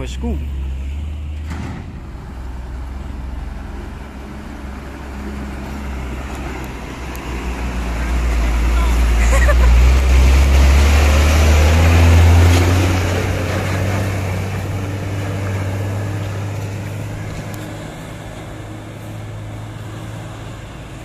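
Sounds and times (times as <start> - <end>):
truck diesel engine pulling away: 0.0 - 21.0.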